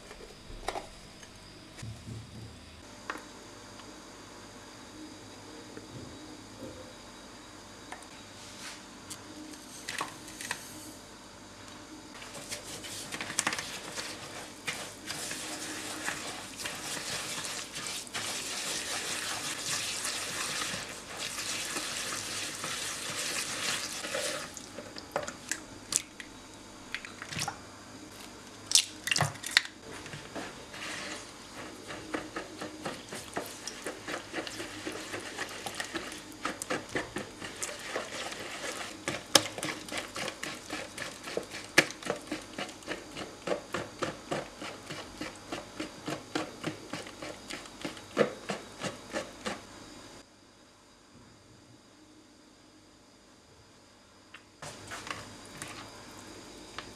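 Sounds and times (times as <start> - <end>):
whisk swishing in bowl: 12.2 - 24.5, 29.9 - 49.6.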